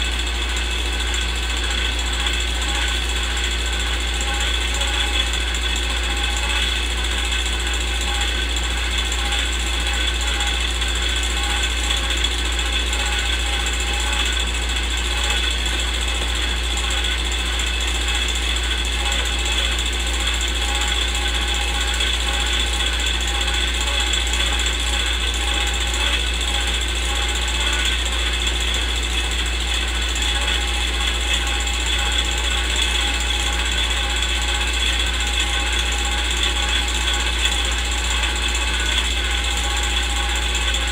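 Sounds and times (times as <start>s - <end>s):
constant low hum: 0.0s - 40.9s
film projector running: 0.0s - 40.9s.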